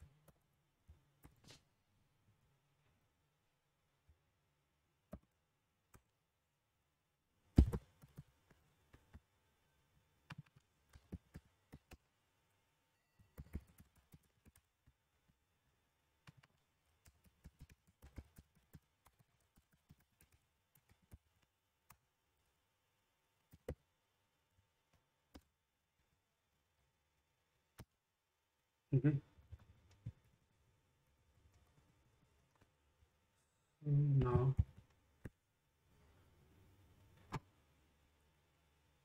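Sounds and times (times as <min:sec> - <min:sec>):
keyboard typing clicks: 0:13.2 - 0:15.0.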